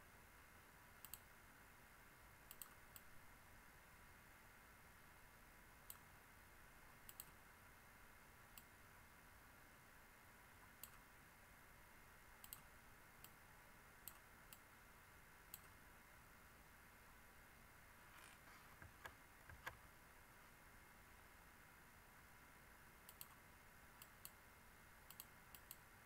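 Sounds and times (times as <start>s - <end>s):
steady low hiss: 0.0s - 26.0s
computer mouse clicking: 1.0s - 1.3s, 2.5s - 3.1s, 7.1s - 7.4s, 10.8s - 11.0s, 12.4s - 13.4s, 14.0s - 14.7s, 15.5s - 15.8s, 18.2s - 19.8s, 23.1s - 23.4s, 24.0s - 24.4s, 25.1s - 25.9s.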